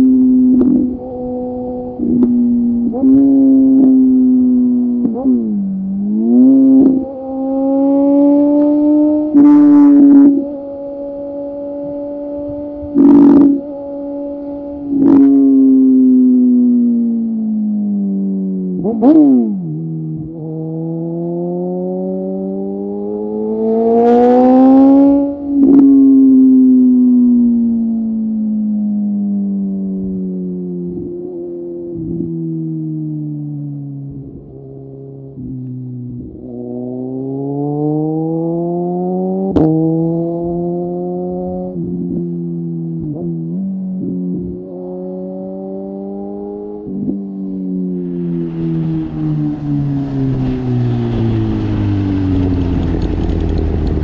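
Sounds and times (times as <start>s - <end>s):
motorcycle engine revving: 0.0s - 28.2s, 35.2s - 54.0s
wind rush: 48.0s - 54.0s.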